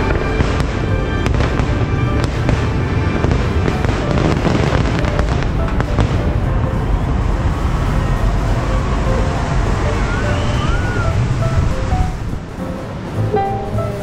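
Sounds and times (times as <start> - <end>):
fireworks cracking and banging: 0.0 - 14.0
low rumble: 0.0 - 14.0
music playing: 0.0 - 14.0.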